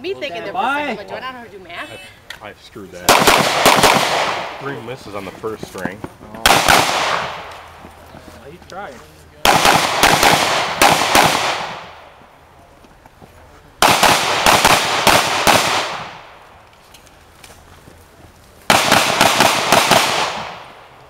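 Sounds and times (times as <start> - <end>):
pistol shots echoing: 3.1 - 4.6, 6.4 - 7.6, 9.4 - 12.1, 13.8 - 16.4, 18.7 - 21.0.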